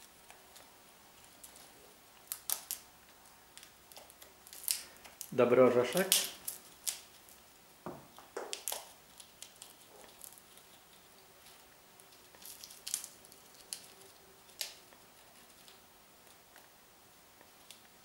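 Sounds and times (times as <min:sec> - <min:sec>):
parrot beak cracking a nut: 0:08.4 - 0:10.4.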